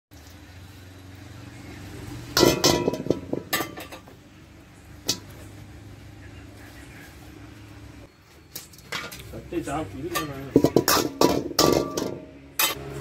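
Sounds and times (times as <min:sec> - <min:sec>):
metal clanking on iron wok: 0:02.3 - 0:04.2, 0:10.0 - 0:13.0.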